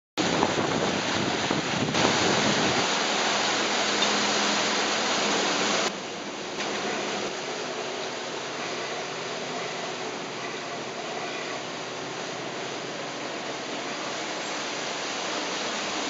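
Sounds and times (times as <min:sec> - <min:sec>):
wind on microphone: 0:00.2 - 0:03.7
boat wake water rushing: 0:00.2 - 0:16.0.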